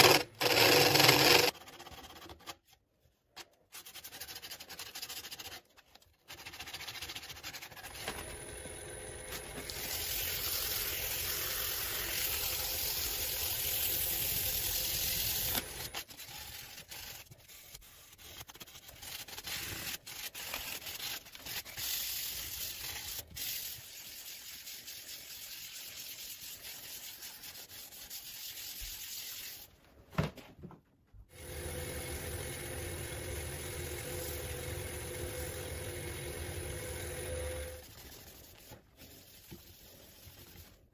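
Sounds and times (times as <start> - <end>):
lathe motor humming: 31.4 - 37.8.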